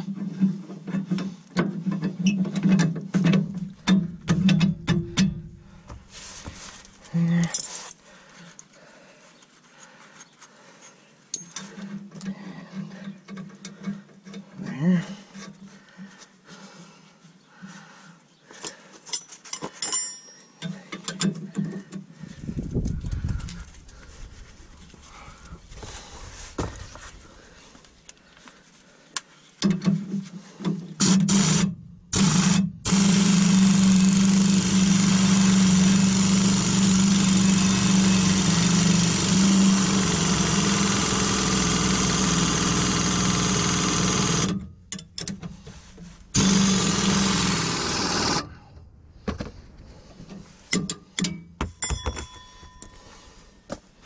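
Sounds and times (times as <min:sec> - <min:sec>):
metal clinks of hand wrench: 0:19.1 - 0:21.7
pneumatic wrench running: 0:31.0 - 0:45.4, 0:46.3 - 0:48.6.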